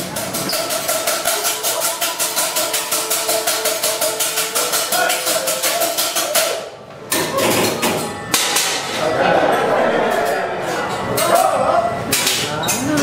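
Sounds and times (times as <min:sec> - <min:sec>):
rapid percussive beat: 0:00.0 - 0:06.7.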